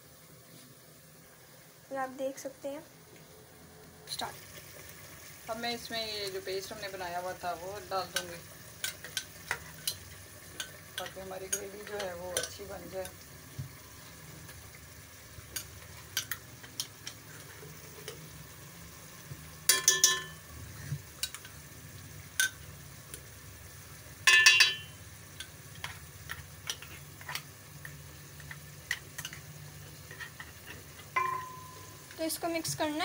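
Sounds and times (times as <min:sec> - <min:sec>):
paste sizzling in hot oil: 0:04.0 - 0:33.0
spoon knocking metal pot: 0:19.7 - 0:20.4, 0:24.2 - 0:25.0, 0:31.1 - 0:32.0.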